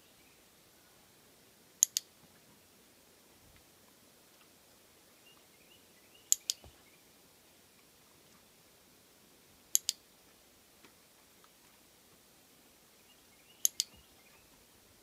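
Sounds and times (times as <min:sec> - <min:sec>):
training clicker clicks: 0:01.8 - 0:02.1, 0:06.3 - 0:06.7, 0:09.8 - 0:10.0, 0:13.6 - 0:14.0.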